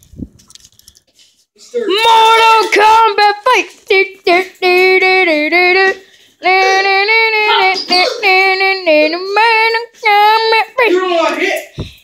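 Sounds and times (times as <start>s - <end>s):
child singing wordless notes: 1.9s - 10.9s.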